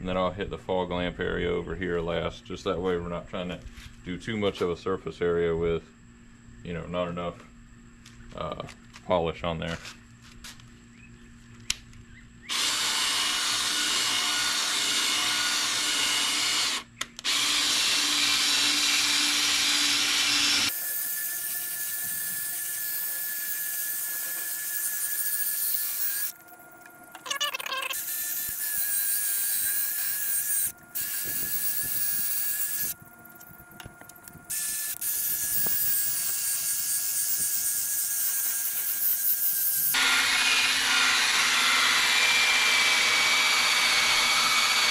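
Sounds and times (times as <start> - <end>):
cordless drill spinning: 12.5 - 44.9.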